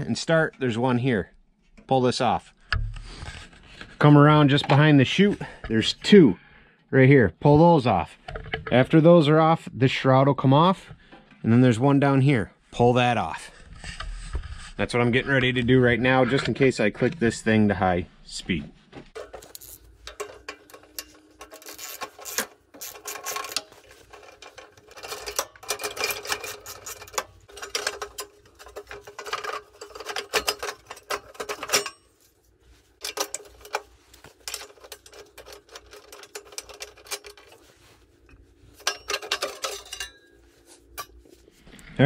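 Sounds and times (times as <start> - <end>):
socket ratchet clicking: 19.2 - 32.0.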